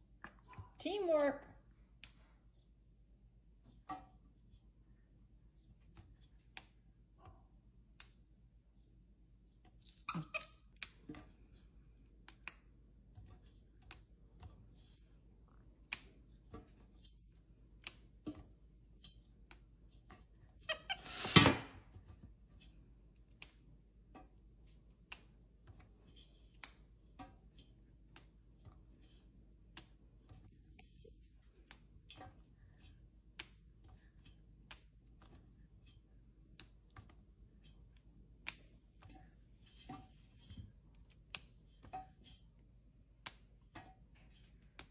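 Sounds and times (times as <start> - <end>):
green beans snapping: 9.6 - 11.1, 12.2 - 12.8, 15.8 - 16.4, 23.1 - 23.6.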